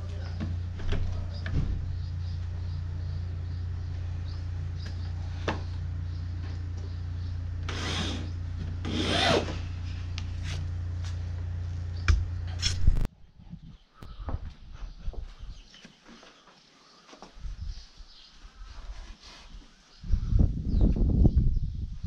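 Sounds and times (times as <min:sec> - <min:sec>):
low hum: 0:00.0 - 0:15.6
carpet scraping against wood: 0:08.9 - 0:11.2.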